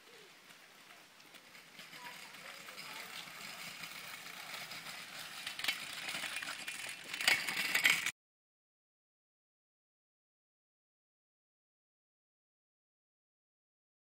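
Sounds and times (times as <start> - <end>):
scooter wheels rolling on wet tarmac: 0.0 - 8.1
rattling clacks: 1.2 - 8.1.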